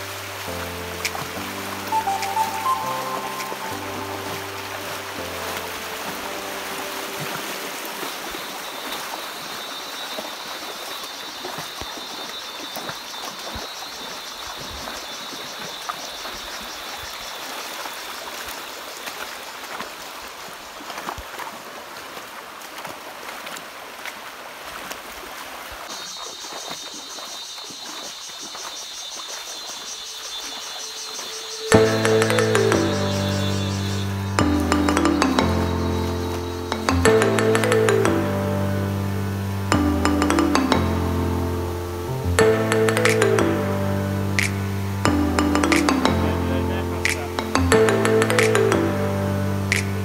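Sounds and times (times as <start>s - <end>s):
stream flowing: 0.0s - 50.0s.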